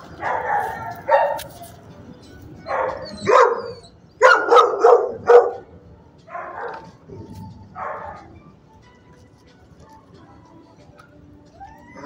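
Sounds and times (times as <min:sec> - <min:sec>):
dog barking: 0:00.2 - 0:01.5, 0:02.7 - 0:05.7, 0:06.3 - 0:07.0, 0:07.8 - 0:08.3.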